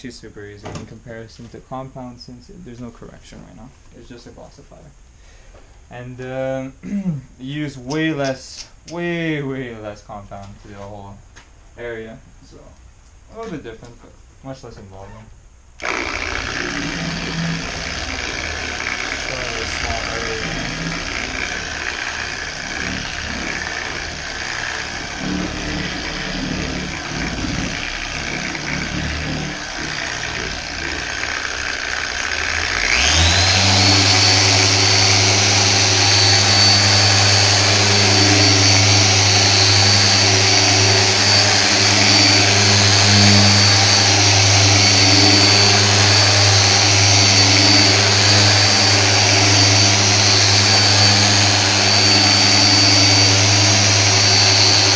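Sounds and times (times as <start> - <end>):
low uneven noise: 0.0 - 54.9
electric polisher motor whine: 15.8 - 54.9.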